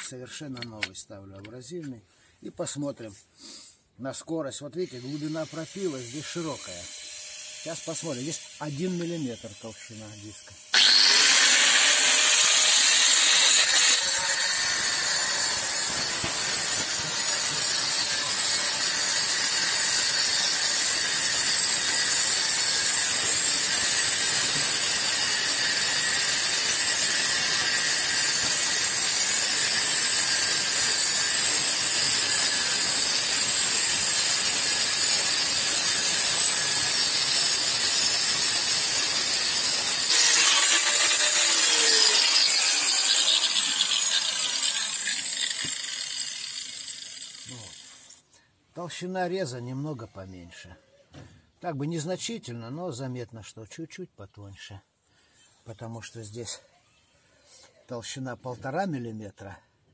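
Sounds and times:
angle grinder cutting sheet steel: 4.6s - 48.2s.

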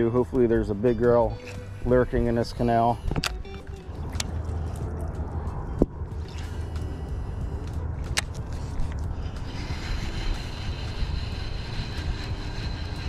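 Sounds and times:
boat motor running: 0.0s - 13.0s
faint high whine: 0.6s - 3.9s.

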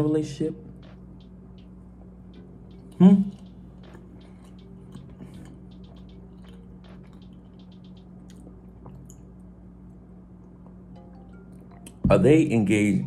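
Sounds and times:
steady low hum: 0.0s - 13.0s
person chewing and sipping: 2.8s - 9.3s.

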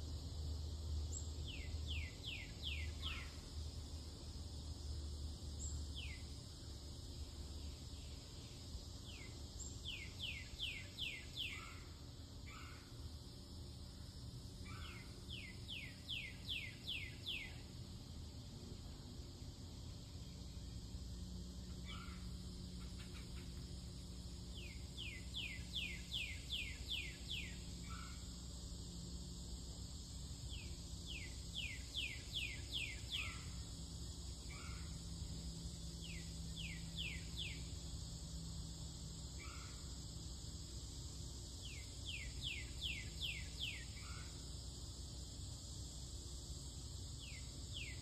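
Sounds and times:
low background hum: 0.0s - 48.0s
songbird singing: 0.0s - 48.0s.

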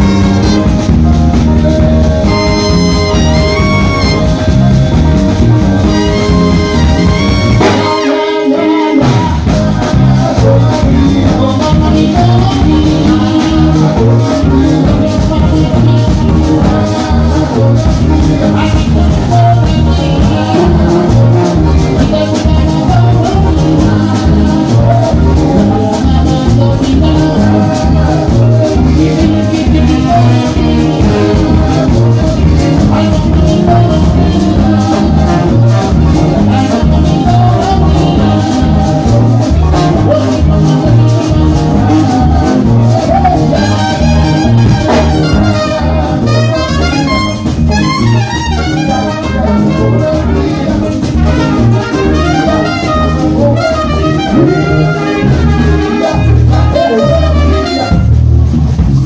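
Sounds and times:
trumpets: 0.0s - 10.6s, 27.1s - 58.5s
drum kit: 0.0s - 59.0s
electric guitar: 0.0s - 59.0s
sousaphone: 1.8s - 9.4s.

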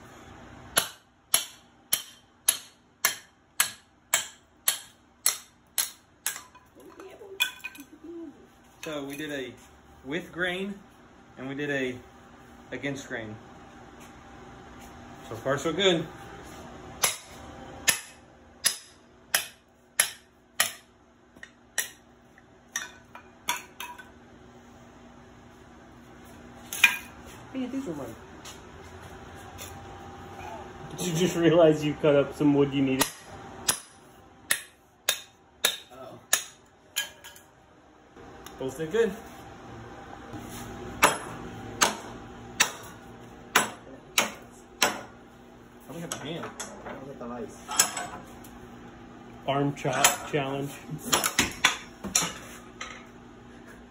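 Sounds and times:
hammer striking metal blade: 0.8s - 6.6s, 17.0s - 22.0s, 33.0s - 37.4s, 41.0s - 45.1s.

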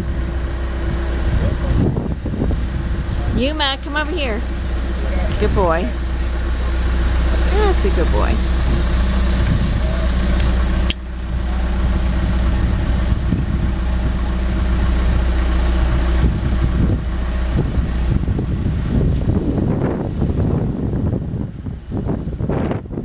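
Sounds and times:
excavator diesel engine running: 0.0s - 23.0s.

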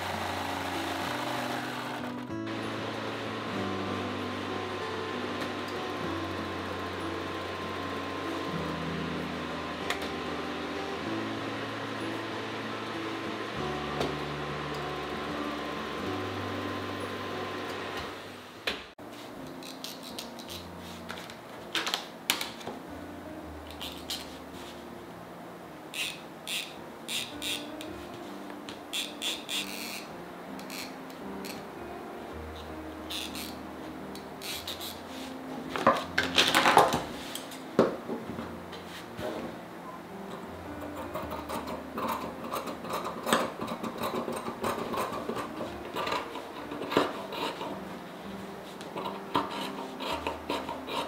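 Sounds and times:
rotary cutter cutting fabric: 0.0s - 3.2s, 49.0s - 51.0s
soft background music: 0.0s - 51.0s
shears snipping fabric: 19.5s - 21.1s.

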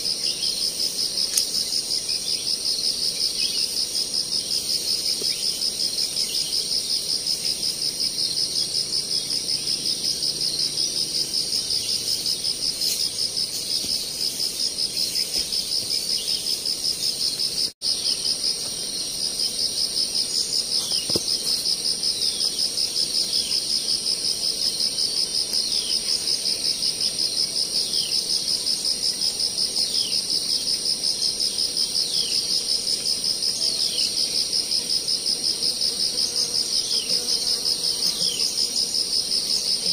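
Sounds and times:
insect chorus buzzing: 0.0s - 39.9s.

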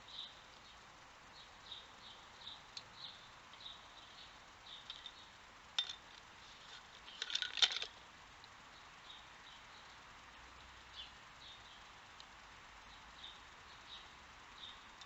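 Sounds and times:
sticks and treats clinking in pipe: 5.8s - 8.0s.

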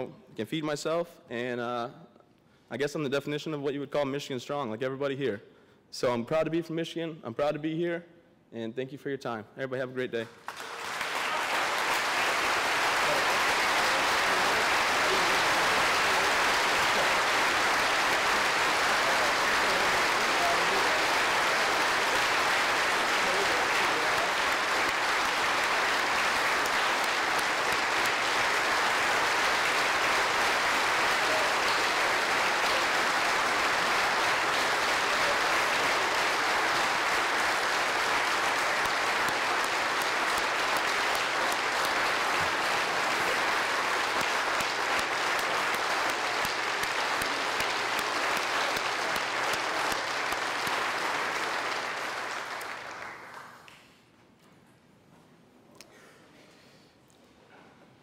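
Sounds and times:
large crowd clapping: 10.2s - 54.0s.

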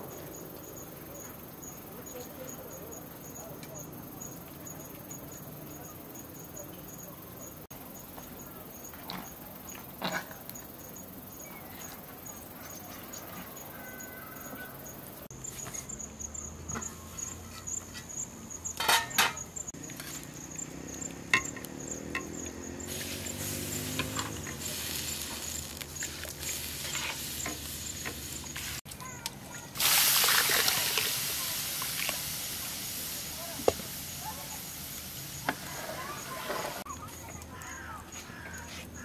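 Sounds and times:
pot of water boiling: 17.2s - 36.9s
rice and water pouring into pot: 29.8s - 36.8s.

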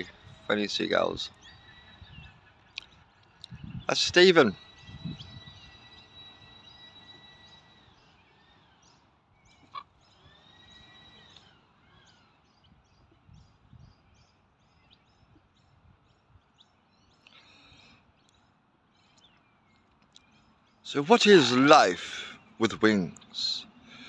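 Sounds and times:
gulls calling: 0.0s - 13.2s, 20.2s - 24.0s.

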